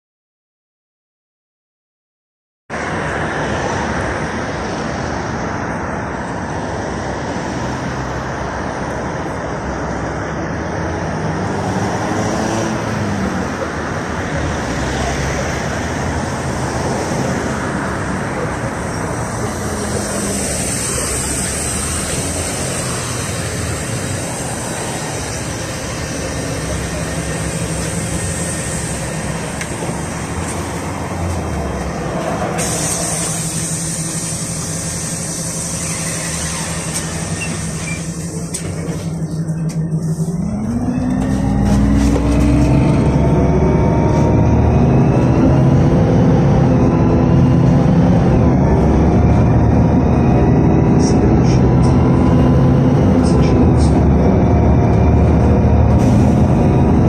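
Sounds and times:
road traffic passing: 2.7s - 57.0s
bus engine idling: 12.8s - 57.0s.

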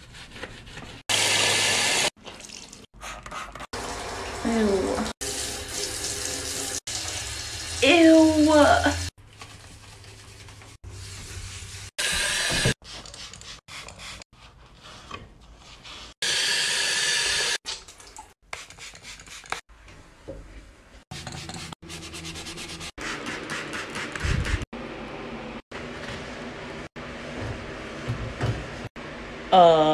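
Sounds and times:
sponge scrubbing hard surface: 9.2s - 16.2s, 21.1s - 24.7s.

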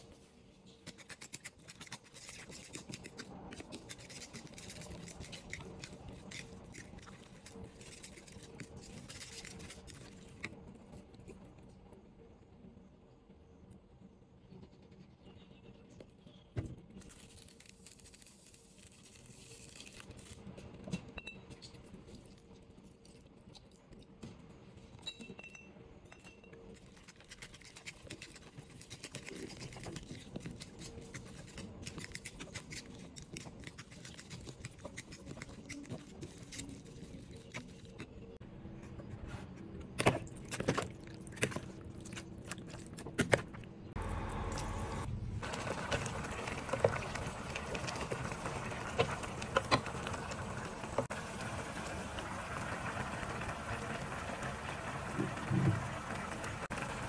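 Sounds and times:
fork beating eggs in a bowl: 0.8s - 11.0s, 26.6s - 38.4s.

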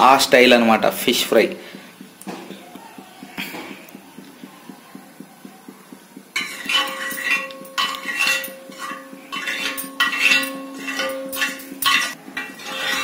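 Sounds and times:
faint steady hum: 0.0s - 12.5s
ladle scraping on griddle pan: 6.4s - 13.0s.

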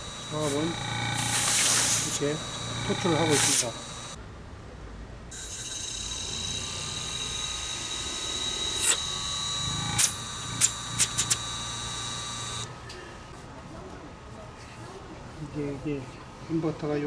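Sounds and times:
high whine from inverter drive: 0.0s - 4.2s, 5.3s - 12.8s
sharp clicks: 9.9s - 11.4s.

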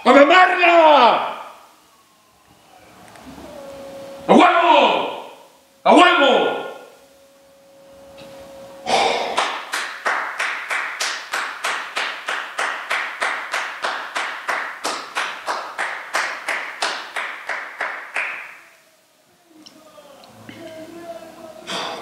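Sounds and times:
person clapping hands: 9.3s - 18.6s.

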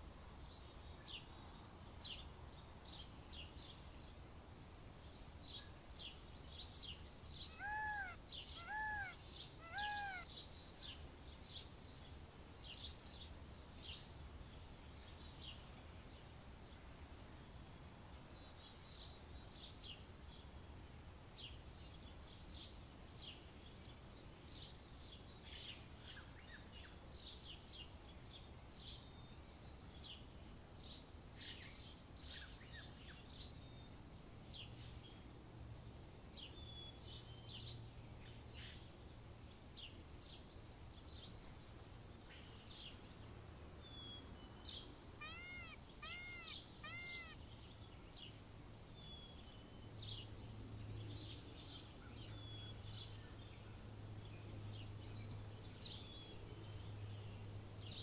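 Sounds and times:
small birds chirping: 0.0s - 16.2s, 36.4s - 58.0s
bird calls rising and falling: 7.5s - 10.3s, 45.2s - 47.4s.

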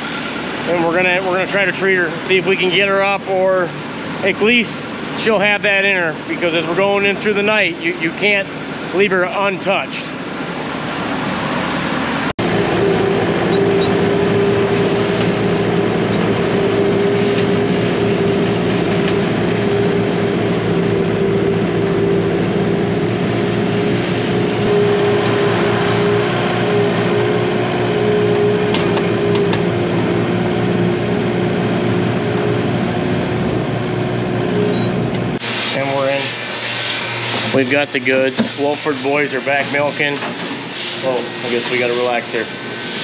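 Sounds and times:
loader engine running: 10.2s - 35.5s.

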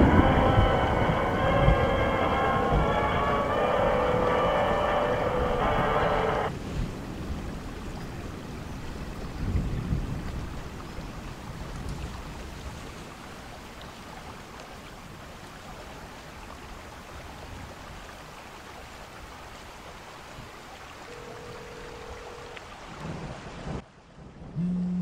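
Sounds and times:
low rumble: 0.0s - 6.5s
steady rushing noise: 0.0s - 7.3s.

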